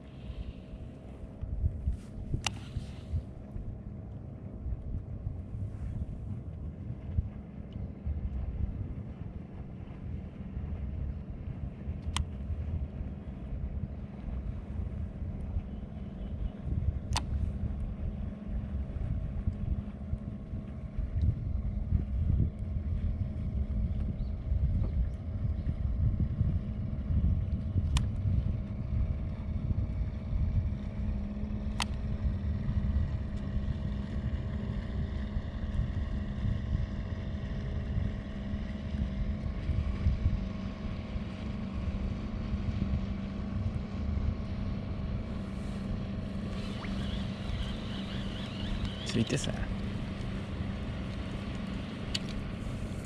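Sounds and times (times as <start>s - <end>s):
steady low hum: 0.0s - 53.0s
wind buffeting microphone: 0.0s - 53.0s
sharp clicks: 46.5s - 50.4s, 51.0s - 52.4s.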